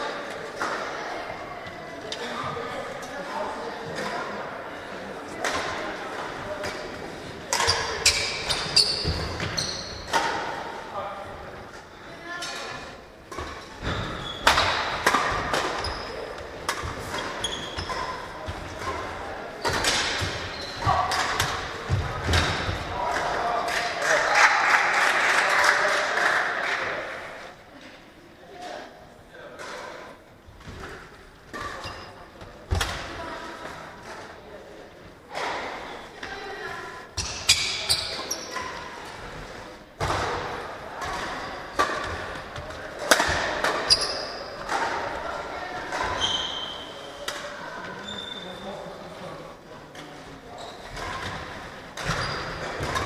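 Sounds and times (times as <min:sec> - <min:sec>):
sports shoes squeaking: 0:07.6 - 0:10.2, 0:13.4 - 0:14.8, 0:15.6 - 0:18.9, 0:19.6 - 0:21.2, 0:31.6 - 0:32.2, 0:37.2 - 0:38.8, 0:43.8 - 0:44.6, 0:46.0 - 0:47.2, 0:47.9 - 0:48.6, 0:50.5 - 0:51.3, 0:52.0 - 0:52.8.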